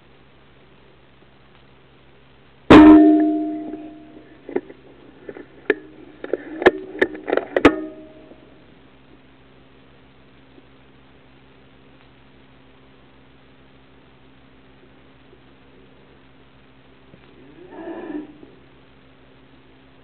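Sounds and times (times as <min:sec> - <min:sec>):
sharp shot with metallic ring: 0:02.7 - 0:04.2.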